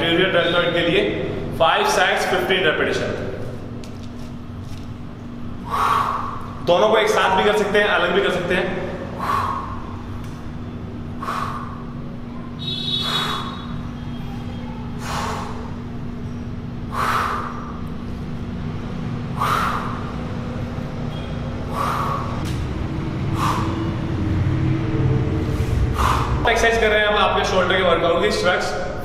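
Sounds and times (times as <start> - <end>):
man breathing out hard: 8.9 - 10.0, 11.0 - 12.0, 16.8 - 17.8, 19.2 - 20.3, 21.6 - 22.4, 23.2 - 24.1, 25.6 - 26.4.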